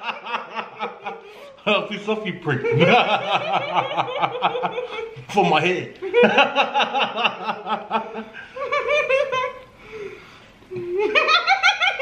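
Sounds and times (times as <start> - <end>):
man laughing: 2.5 - 9.6.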